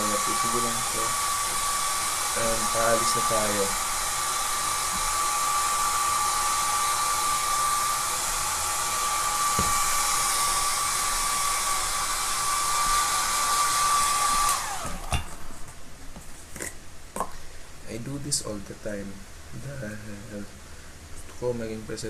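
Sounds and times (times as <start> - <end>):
hair dryer running: 0.0 - 15.4.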